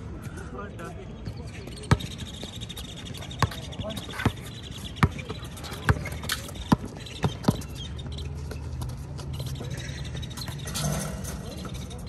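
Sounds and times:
basketball bouncing on concrete: 0:03.3 - 0:09.7.

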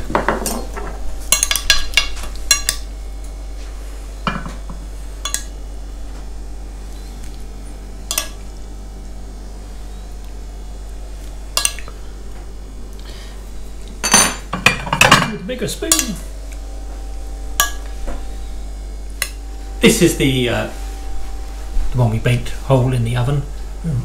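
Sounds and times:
low hum: 0:00.0 - 0:24.0
metal cutlery clinking on plates: 0:11.6 - 0:11.9.

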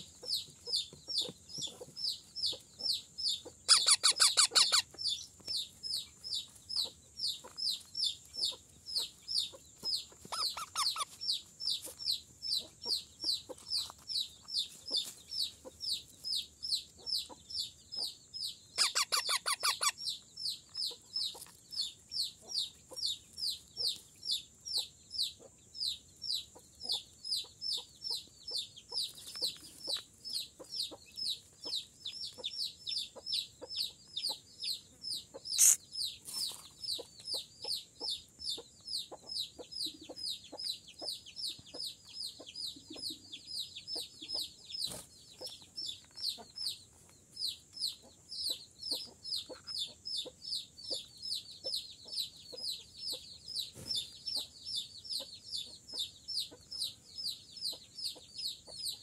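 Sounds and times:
parrot chicks squawking: 0:02.5 - 0:05.3, 0:06.0 - 0:13.6, 0:18.8 - 0:20.2, 0:35.4 - 0:35.9, 0:48.0 - 0:50.3.

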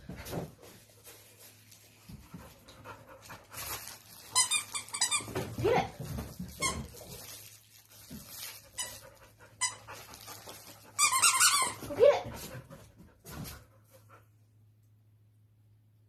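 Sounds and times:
squeaky dog toy squeaking: 0:04.2 - 0:05.4, 0:11.0 - 0:12.2.

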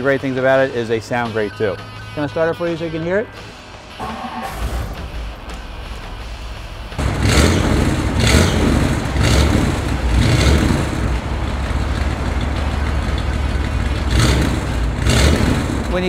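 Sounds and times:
car engine revving: 0:04.0 - 0:16.0.

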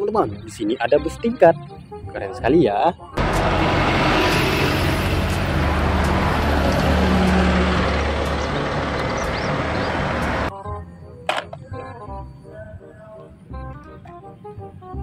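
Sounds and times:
bus engine droning: 0:03.2 - 0:10.5
road and traffic noise: 0:03.2 - 0:10.5.

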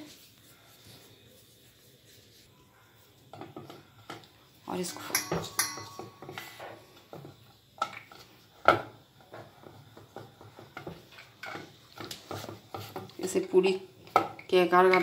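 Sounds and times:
rolling pin rolling dough: 0:00.0 - 0:13.8.

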